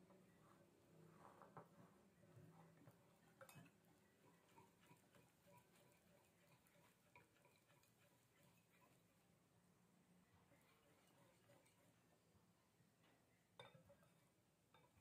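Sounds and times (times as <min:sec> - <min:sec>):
whisk clicking against glass bowl: 0:03.4 - 0:09.0.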